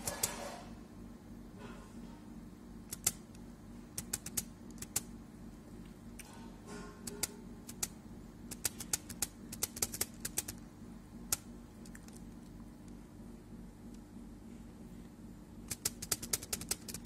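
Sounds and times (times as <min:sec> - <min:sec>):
low steady hum: 0:00.0 - 0:17.0
computer mouse clicks: 0:02.9 - 0:03.3, 0:04.0 - 0:05.1, 0:07.0 - 0:07.9, 0:08.5 - 0:10.6, 0:15.7 - 0:17.0.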